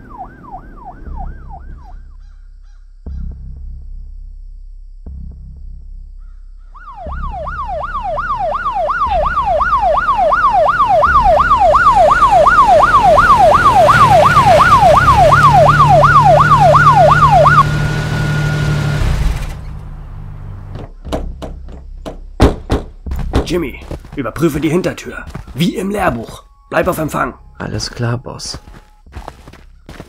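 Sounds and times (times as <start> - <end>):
police siren yelping: 0.0 - 2.1, 6.7 - 18.8
held siren tone: 0.0 - 2.2, 6.6 - 19.0.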